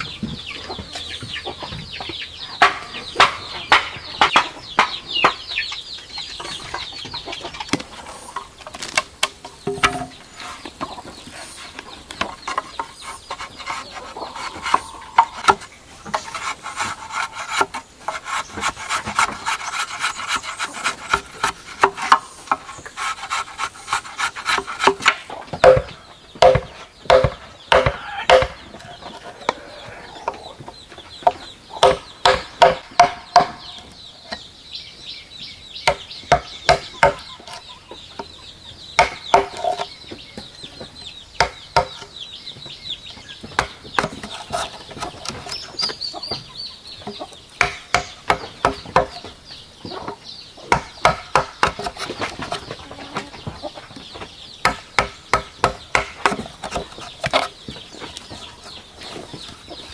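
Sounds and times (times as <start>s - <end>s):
mallet knocking chisel into bamboo: 24.6s - 28.6s.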